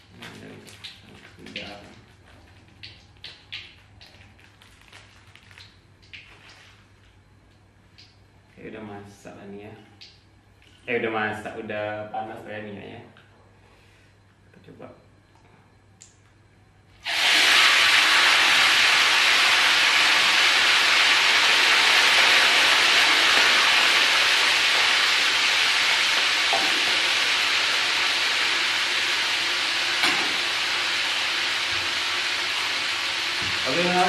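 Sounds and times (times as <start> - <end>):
hot oil sizzling: 17.0 - 34.0.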